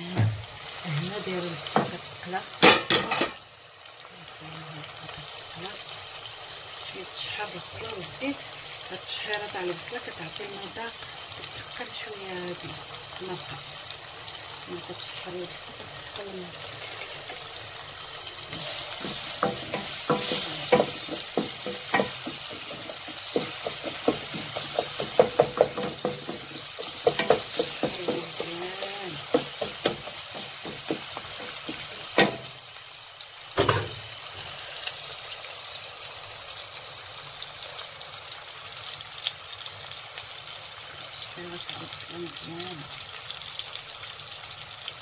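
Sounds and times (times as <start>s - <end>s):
onions sizzling in oil: 0.0s - 45.0s
utensil clicking against pot: 18.9s - 28.6s.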